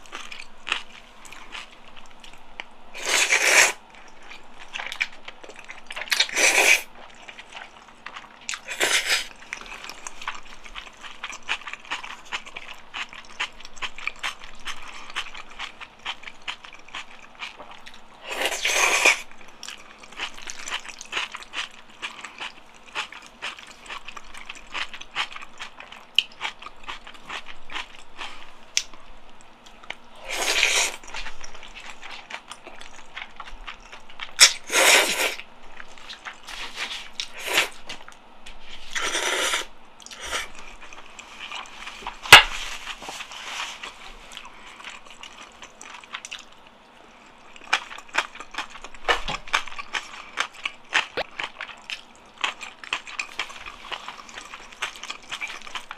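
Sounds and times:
wet chewing and smacking: 0.0s - 38.2s, 40.0s - 55.9s
noodle slurps: 3.0s - 3.8s, 6.2s - 6.9s, 8.7s - 9.3s, 34.4s - 35.4s, 38.9s - 40.5s.

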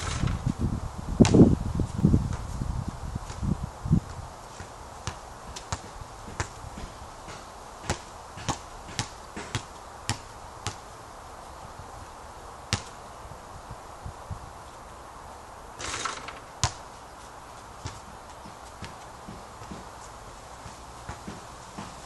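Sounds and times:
basketball bouncing on court: 4.6s - 10.8s, 12.7s - 12.9s, 15.8s - 16.8s, 17.8s - 19.9s, 20.6s - 22.0s.

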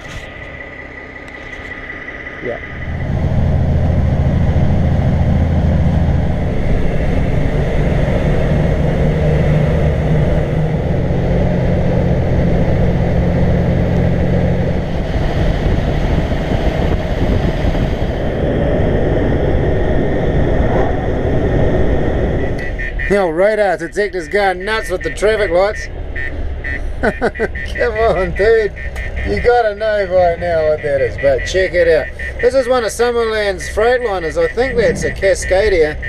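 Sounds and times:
road noise: 0.0s - 36.0s
truck diesel engine drone: 0.0s - 36.0s.

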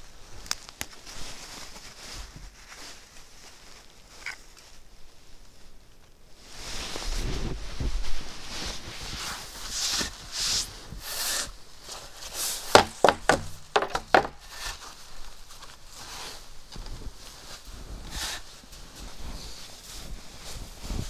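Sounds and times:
clothing and snow rustling: 0.0s - 12.7s, 14.4s - 21.0s
wooden skis knocking: 12.0s - 14.9s.

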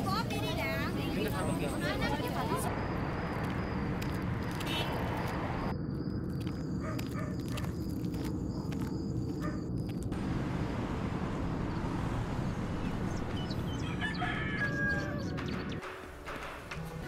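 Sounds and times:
rooster crowing: 13.7s - 15.4s.

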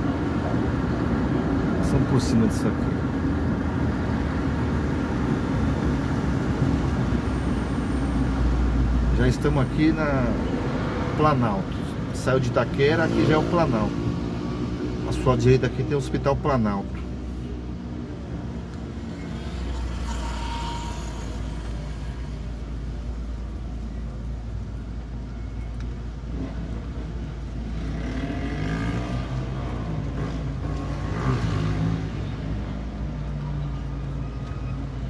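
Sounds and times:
motorcycles passing: 8.1s - 24.0s, 26.3s - 33.4s.

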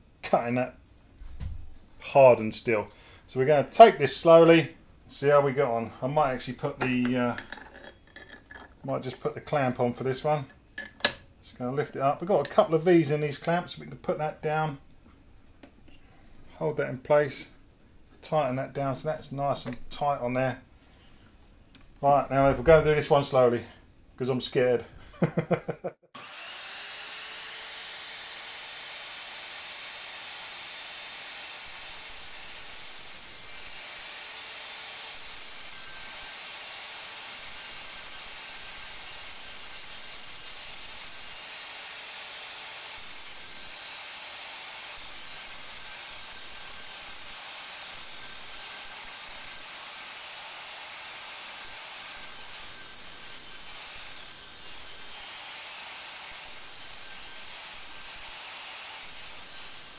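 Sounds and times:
mitre saw cutting steel: 3.6s - 11.2s, 26.2s - 59.9s.

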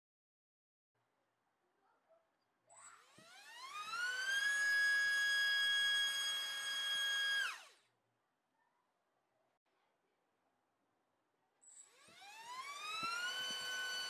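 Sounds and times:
electric motor propeller whine: 2.8s - 7.8s, 11.8s - 14.0s.

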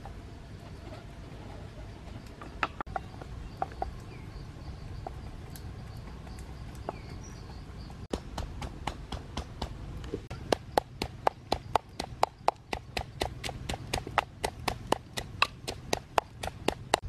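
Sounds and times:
pestle pounding in mortar: 8.1s - 17.0s.

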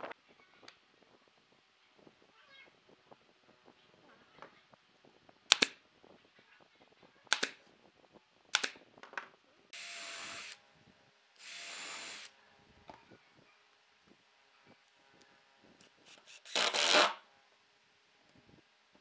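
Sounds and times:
cordless drill whine: 9.8s - 10.6s, 11.4s - 12.3s, 16.3s - 17.1s.

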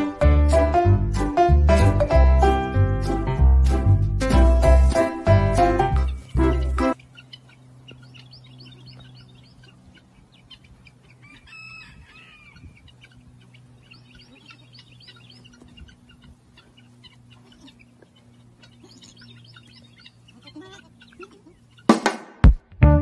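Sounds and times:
small birds chirping: 6.0s - 22.0s
animal call: 6.3s - 21.9s
steady low hum: 12.4s - 21.9s.

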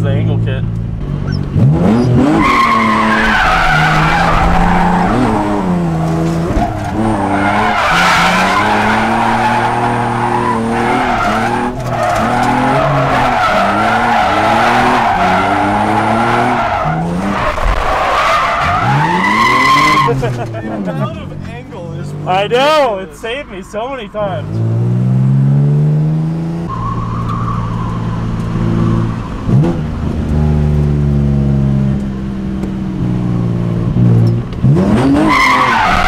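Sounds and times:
car engine revving: 0.0s - 36.0s
tyres squealing: 1.2s - 24.1s, 35.0s - 36.0s.

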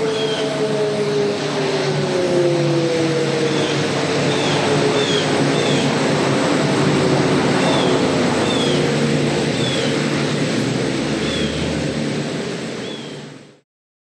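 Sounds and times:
distant warning sirens droning: 0.0s - 13.6s
steady outdoor rushing noise: 0.0s - 13.6s.

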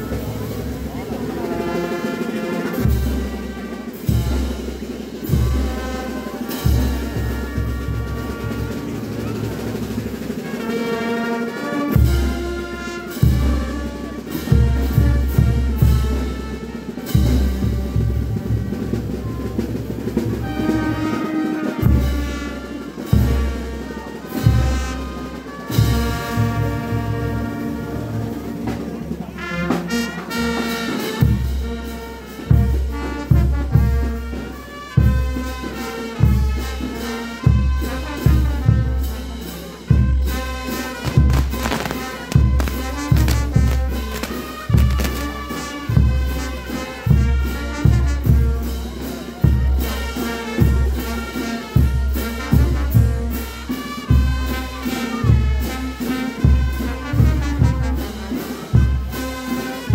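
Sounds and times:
brass band playing: 0.0s - 59.9s
bass drum beat: 40.9s - 45.4s.

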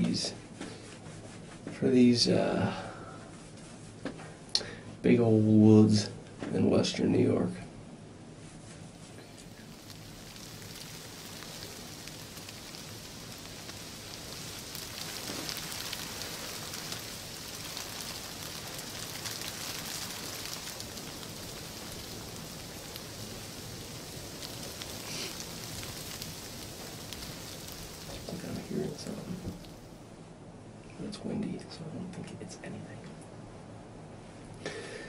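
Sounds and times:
steady rain falling: 8.6s - 30.1s.

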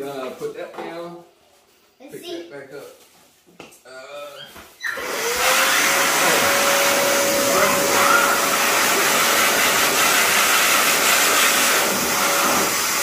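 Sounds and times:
blower motor whine: 5.0s - 13.0s.

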